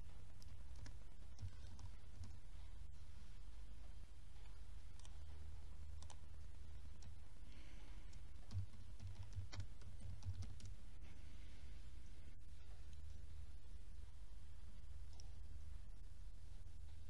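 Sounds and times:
steady low hum: 0.0s - 17.0s
computer keyboard typing: 0.3s - 2.5s, 4.4s - 5.3s, 5.9s - 7.2s, 8.0s - 10.8s.

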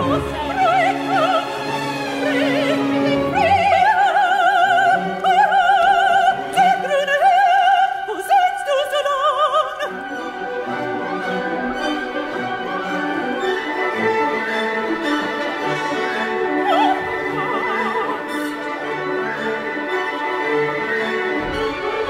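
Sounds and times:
operatic high voice singing: 0.0s - 10.4s, 16.3s - 18.9s
sustained orchestral strings: 0.0s - 22.0s.

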